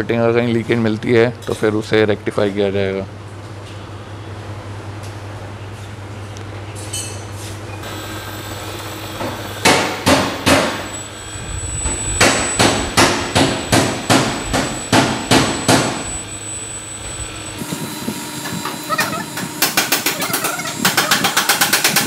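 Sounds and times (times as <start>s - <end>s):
low steady hum: 7.8s - 21.2s
ringing hammer blows: 7.8s - 22.0s.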